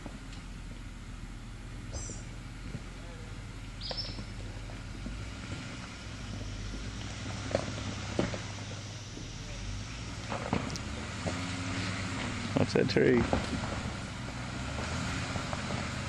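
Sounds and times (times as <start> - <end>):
car engine idling: 0.0 - 16.0
bird chirping: 3.8 - 4.4.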